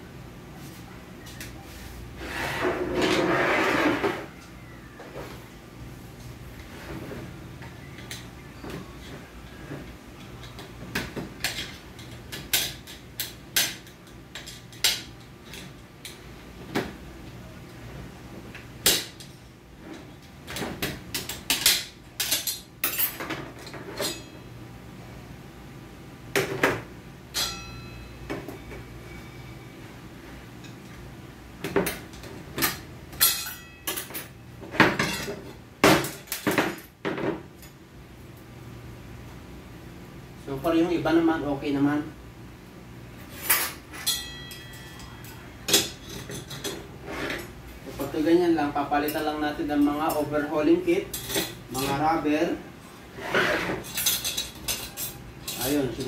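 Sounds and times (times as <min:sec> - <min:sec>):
metal parts clinking and clattering: 0:53.8 - 0:55.8.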